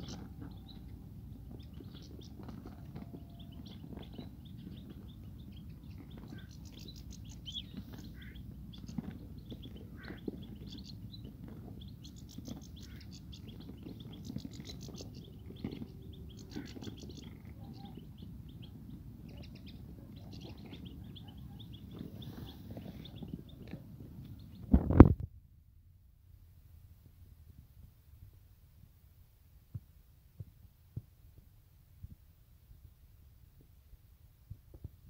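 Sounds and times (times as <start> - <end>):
birds chirping: 0.0 - 24.7
steady low rumble: 0.0 - 34.7.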